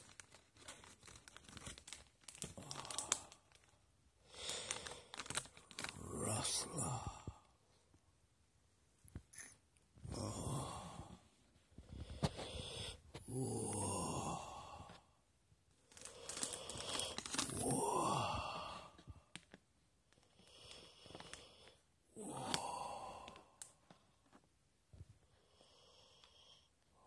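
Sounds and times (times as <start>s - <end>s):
person moaning breathily: 2.5s - 3.5s, 5.8s - 7.6s, 10.0s - 11.3s, 13.1s - 15.1s, 16.1s - 19.2s, 22.1s - 23.6s.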